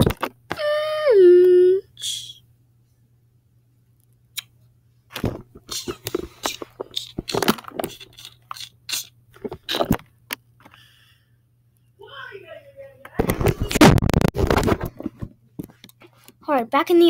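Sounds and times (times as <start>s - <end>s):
fingers rubbing on phone: 5.6s - 9.0s.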